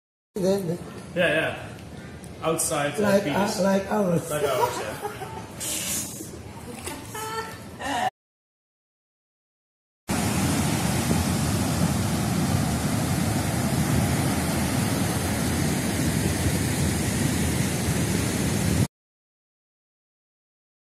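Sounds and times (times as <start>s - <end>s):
ocean surf breaking on beach: 10.1s - 18.9s.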